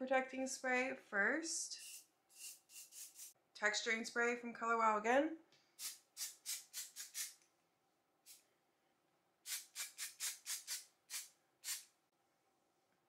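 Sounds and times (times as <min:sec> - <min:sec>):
aerosol spray hissing: 0:01.8 - 0:03.4, 0:05.8 - 0:07.4, 0:09.5 - 0:11.9.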